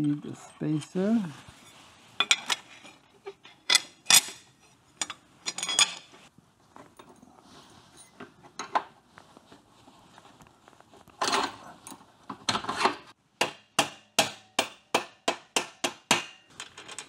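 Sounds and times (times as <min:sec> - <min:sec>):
metal motorcycle parts clinking: 0:02.2 - 0:06.2.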